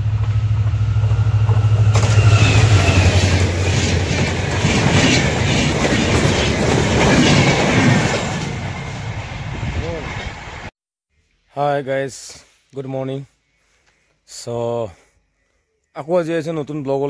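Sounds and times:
locomotive drone: 0.0s - 10.7s
train wheels clattering over joints: 0.2s - 8.7s.

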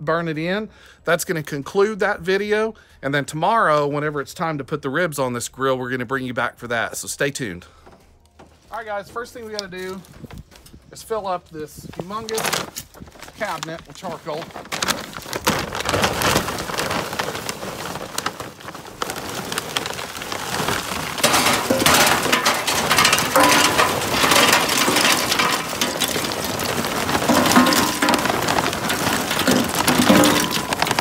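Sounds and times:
charcoal pouring into metal hopper: 13.4s - 31.0s.

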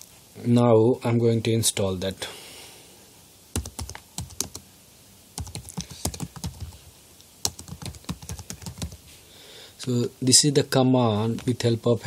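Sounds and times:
typing on keyboard: 3.6s - 4.6s, 5.4s - 6.8s, 7.4s - 9.0s.

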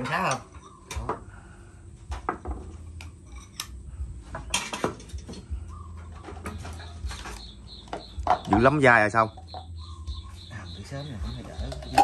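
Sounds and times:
low steady hum: 0.0s - 12.0s
tableware clinking: 2.8s - 3.7s, 11.5s - 12.0s.

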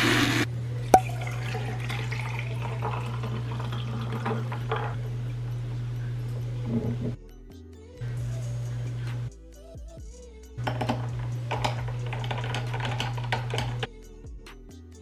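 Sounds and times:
electric milk frother buzzing: 0.0s - 0.5s, 1.2s - 7.2s, 10.6s - 13.9s
liquid pouring into a glass: 1.0s - 5.0s.

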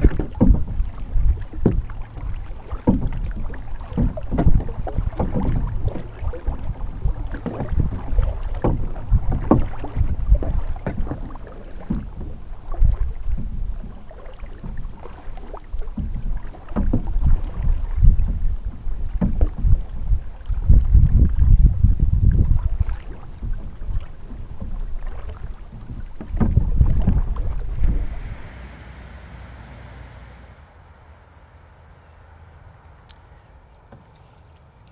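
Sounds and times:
water knocking against plastic hull: 0.0s - 30.4s
wind rumble on microphone: 0.0s - 30.6s
paddle splashes: 0.0s - 30.9s.

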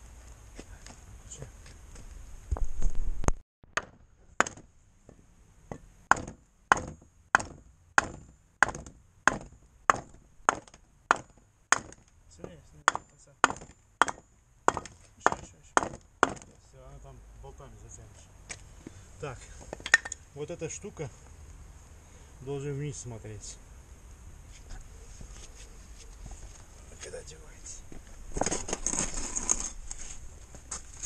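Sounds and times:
sharp metallic knocks: 3.8s - 4.7s, 5.7s - 16.6s.

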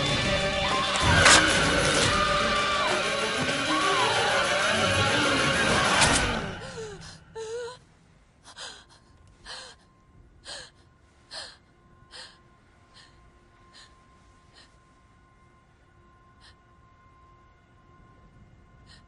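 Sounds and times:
woman panting heavily: 8.4s - 14.8s.

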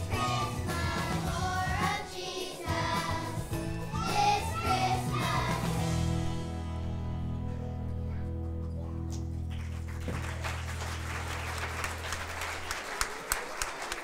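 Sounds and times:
audience applause: 9.3s - 14.0s.

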